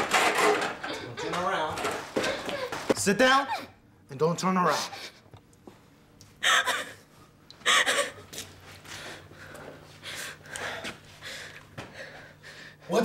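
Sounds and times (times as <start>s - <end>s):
shaky breaths: 6.4s - 12.9s
woman gasping: 7.6s - 8.3s.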